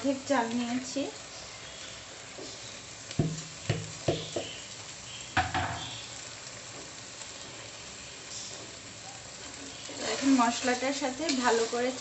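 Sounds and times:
low sizzle: 0.0s - 12.0s
spatula knocking against pot: 3.2s - 4.6s.

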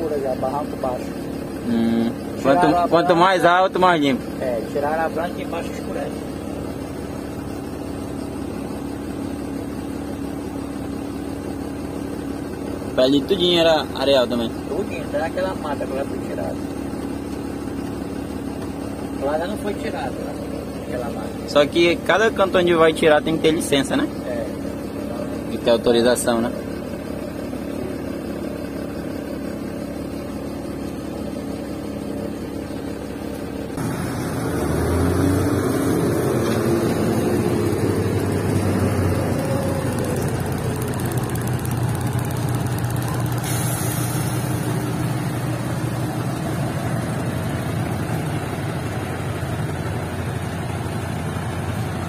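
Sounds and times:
truck engine heard from cab: 0.0s - 52.0s
truck engine idling outside: 0.0s - 52.0s
air hose hissing: 43.3s - 45.2s.

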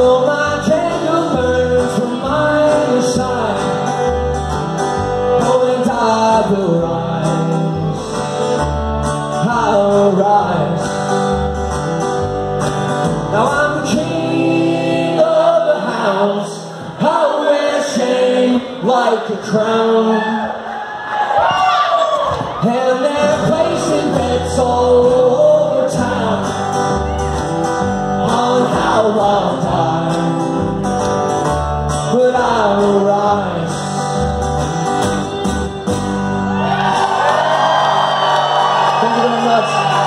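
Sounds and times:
acoustic guitar strumming: 0.0s - 20.0s, 22.6s - 40.0s
fiddle sliding notes: 34.8s - 36.6s.

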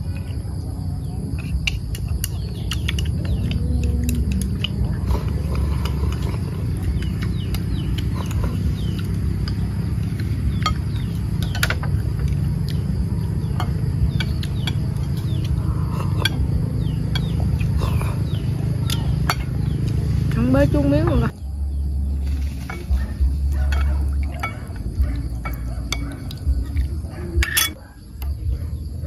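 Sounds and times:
steady low rumble: 0.0s - 29.0s
chopsticks tapping ceramic bowls: 1.4s - 12.8s, 13.5s - 18.0s, 18.8s - 20.0s, 23.5s - 27.8s.

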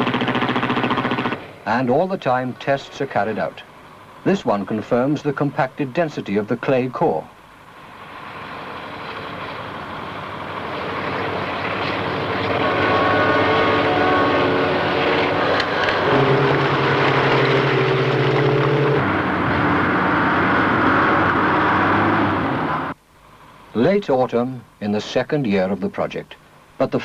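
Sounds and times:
heavy diesel engine running: 0.0s - 23.0s.

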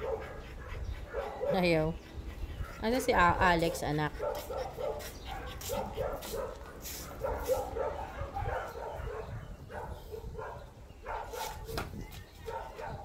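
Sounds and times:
dog barking: 0.0s - 0.3s, 3.8s - 11.8s, 12.4s - 13.0s.

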